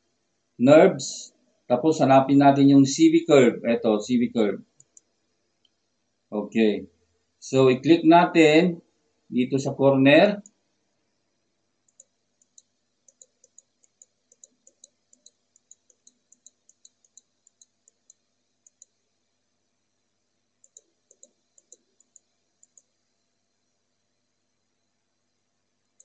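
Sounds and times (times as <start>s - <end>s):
faint computer mouse clicks: 4.8s - 5.8s, 11.9s - 19.0s, 20.6s - 22.9s.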